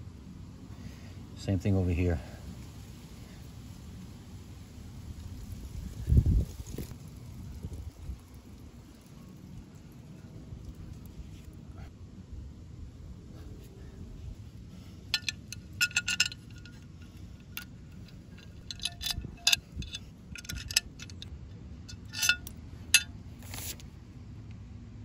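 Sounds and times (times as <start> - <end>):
low background rumble: 0.0 - 25.0
metal parts clinking: 15.1 - 21.3, 21.9 - 23.7.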